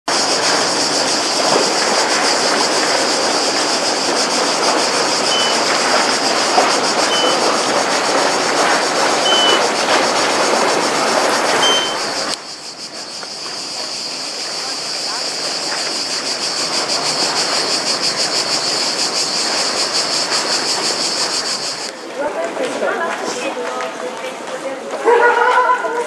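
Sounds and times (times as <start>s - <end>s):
boat engine running: 0.1s - 12.4s, 13.6s - 21.9s
steady high buzz: 0.1s - 22.0s
boat wash rushing: 0.1s - 26.0s
short high chirps: 5.3s - 5.6s, 7.1s - 7.4s, 9.2s - 9.6s, 11.6s - 12.1s.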